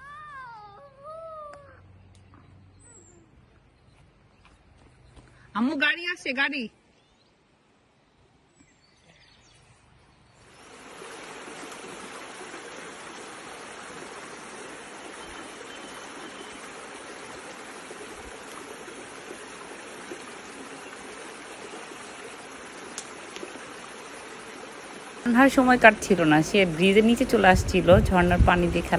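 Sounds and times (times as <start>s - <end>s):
stream running over stones: 10.4s - 28.9s.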